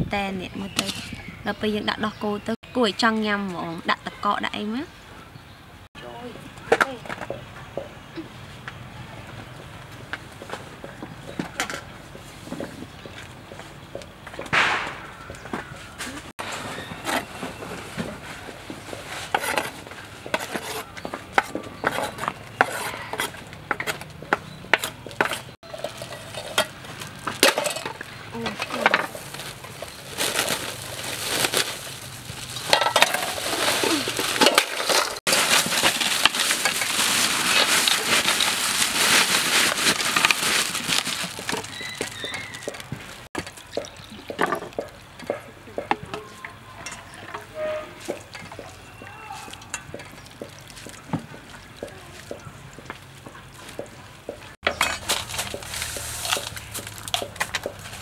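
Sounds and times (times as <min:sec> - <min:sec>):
plastic bag crinkling: 0:29.0 - 0:44.1.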